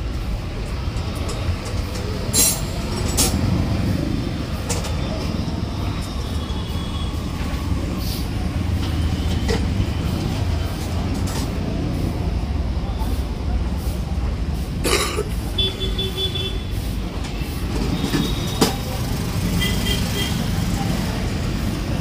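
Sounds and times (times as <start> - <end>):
vehicle engines rumbling: 0.0 - 22.0.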